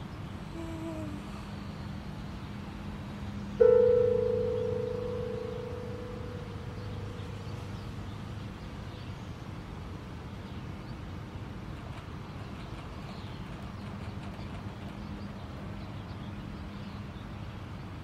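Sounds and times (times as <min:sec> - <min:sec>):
distant traffic rumble: 0:00.0 - 0:18.0
held tone: 0:03.6 - 0:07.8
faint bird chirps: 0:03.6 - 0:08.3.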